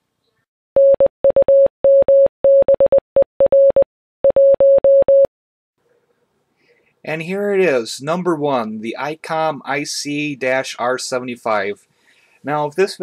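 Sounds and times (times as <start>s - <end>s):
morse code beeps: 0.8s - 5.3s.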